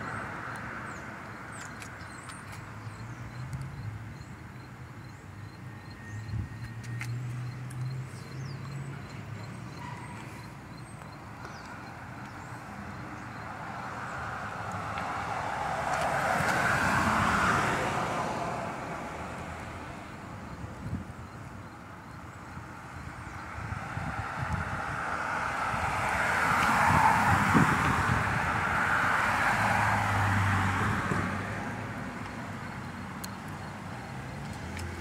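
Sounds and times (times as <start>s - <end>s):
car passing by: 13.8s - 19.6s, 23.6s - 32.1s.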